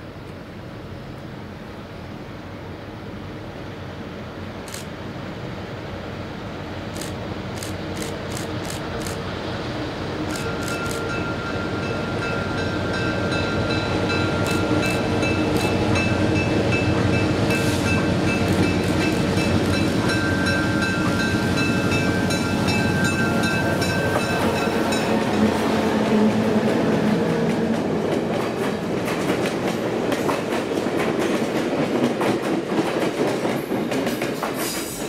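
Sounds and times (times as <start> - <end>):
diesel locomotive engines running: 0.0 - 32.7
sharp clicks: 7.0 - 9.2, 14.5 - 15.8.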